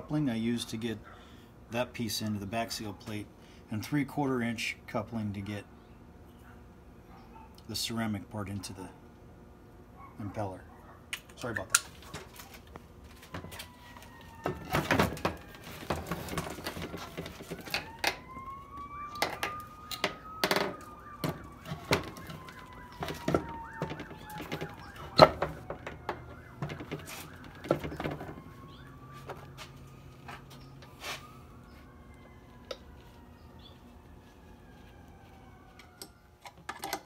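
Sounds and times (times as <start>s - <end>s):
knocks and clatters of pump parts: 11.8s - 29.5s
faint siren: 12.3s - 36.7s.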